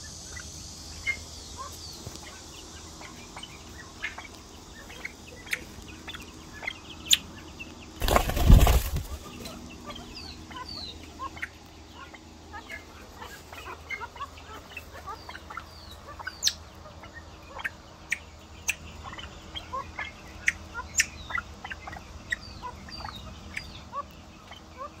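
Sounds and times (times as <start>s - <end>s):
pheasants chirping and clucking: 0.0s - 25.0s
sharp loud bird chips: 8.0s - 10.8s.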